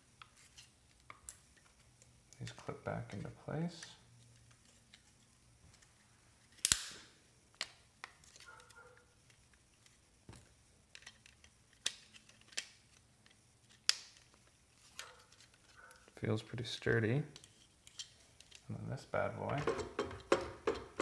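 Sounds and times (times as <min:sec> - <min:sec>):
sharp plastic clicks and snaps: 0:06.6 - 0:08.8, 0:10.9 - 0:15.2.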